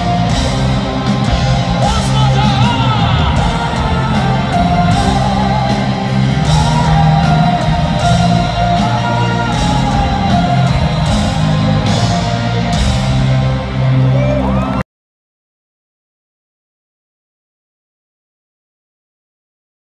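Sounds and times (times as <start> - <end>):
rock song with singing: 0.0 - 14.8.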